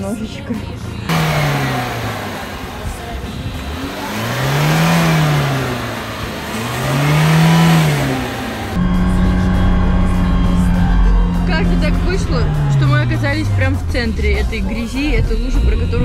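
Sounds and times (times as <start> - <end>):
tyres churning mud: 1.1 - 8.8
car engine revving: 1.1 - 16.0.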